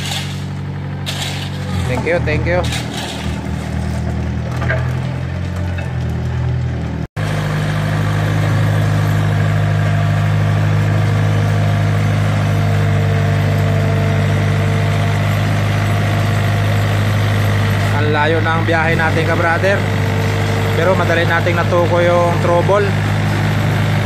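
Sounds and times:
road roller engine running: 0.0s - 24.0s.

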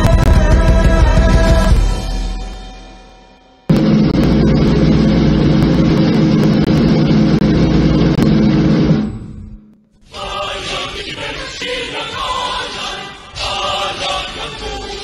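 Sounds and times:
music with chanting voices: 0.0s - 3.0s, 10.0s - 15.0s.

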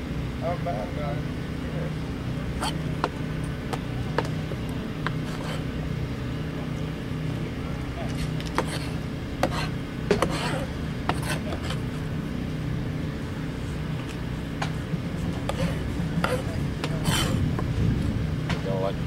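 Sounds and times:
low machine hum: 0.0s - 19.0s
knife chopping on cutting board: 8.5s - 11.8s, 15.5s - 17.4s.

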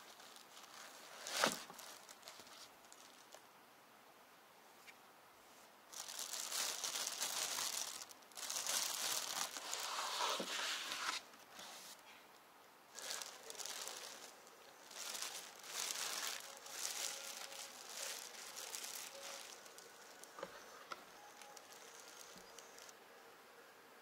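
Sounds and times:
plastic bag crinkling: 0.0s - 3.4s, 5.9s - 11.2s, 12.9s - 22.9s.

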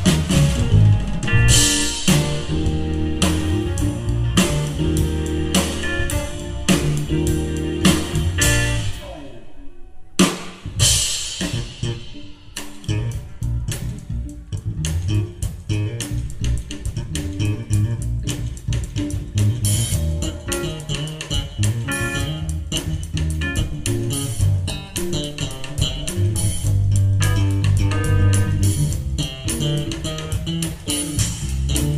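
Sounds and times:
funk jazz band playing: 0.0s - 9.2s, 10.2s - 31.9s.

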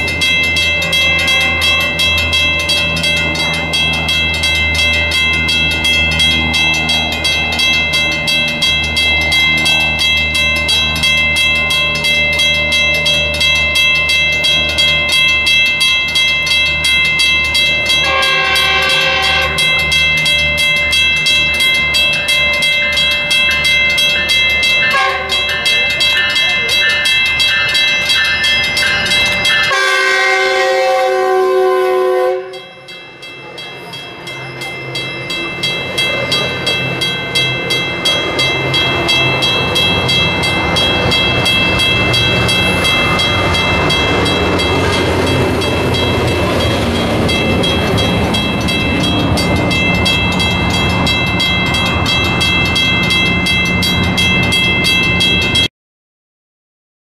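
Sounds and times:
train cars clattering: 0.0s - 31.6s, 32.5s - 55.7s
diesel locomotive rumble: 0.0s - 55.7s
high repeating ringing: 0.0s - 55.7s
train horn chord: 0.9s - 2.1s, 17.9s - 19.7s, 24.9s - 25.5s, 29.6s - 32.9s.

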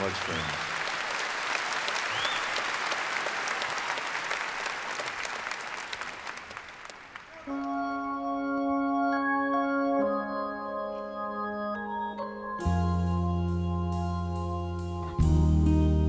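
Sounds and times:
audience applauding: 0.0s - 7.8s
music with long held chords: 7.6s - 16.0s.

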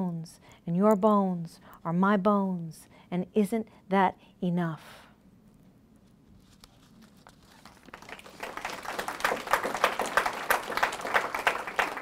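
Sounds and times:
audience applauding: 7.6s - 12.0s.

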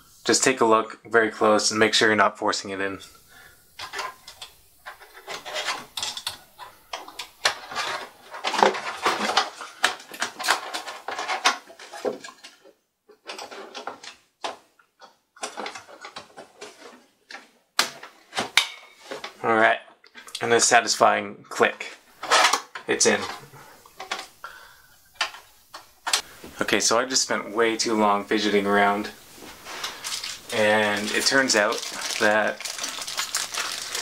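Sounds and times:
metal bracket scraping computer case: 3.8s - 12.6s, 22.2s - 23.4s.

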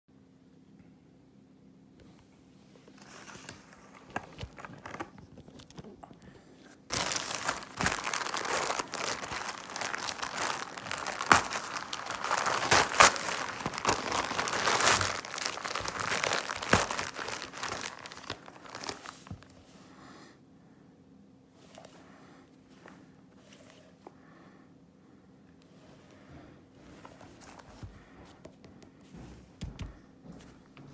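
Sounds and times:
plastic bag crinkling: 6.9s - 19.5s.

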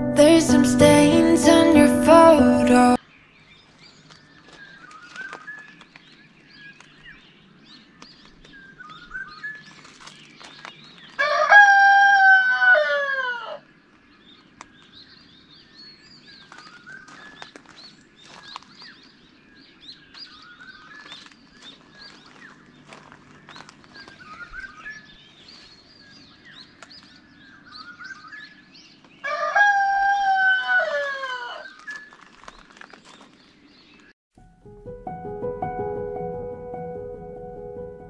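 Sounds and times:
rooster crowing: 11.2s - 13.6s, 29.2s - 31.6s.

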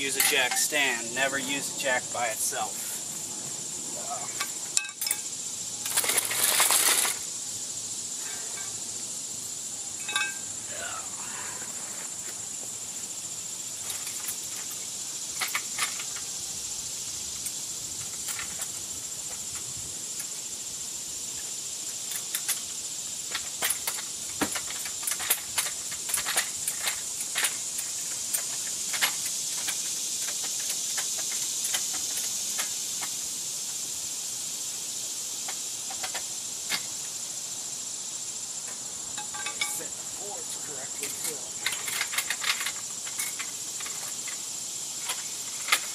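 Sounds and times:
high-pitched insect drone: 0.0s - 45.9s
clicks and knocks of tools: 23.3s - 33.1s, 35.5s - 36.9s, 38.7s - 39.8s, 41.0s - 44.4s.

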